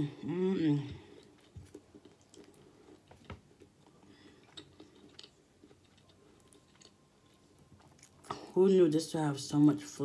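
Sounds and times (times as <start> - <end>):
wet chewing: 1.0 - 8.5.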